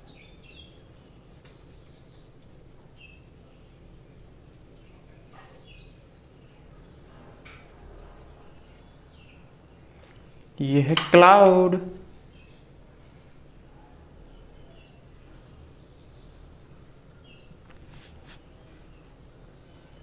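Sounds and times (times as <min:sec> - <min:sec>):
paintbrush scratching on paper: 0:00.0 - 0:10.0, 0:16.6 - 0:20.0.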